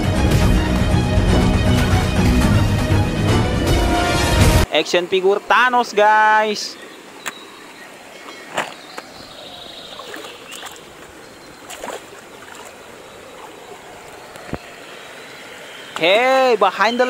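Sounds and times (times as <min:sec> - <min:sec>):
stream trickling over rocks: 0:04.8 - 0:17.0.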